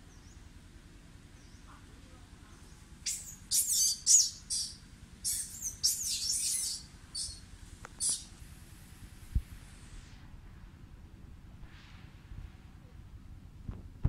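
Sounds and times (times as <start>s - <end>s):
shrill high-pitched chirping calls: 2.6s - 8.3s.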